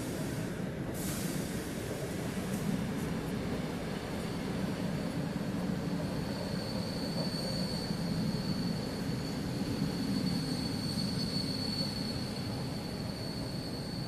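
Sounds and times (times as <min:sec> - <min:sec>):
train wheels rumbling on rails: 0:00.0 - 0:14.0
high-pitched wheel squeal: 0:05.9 - 0:14.0.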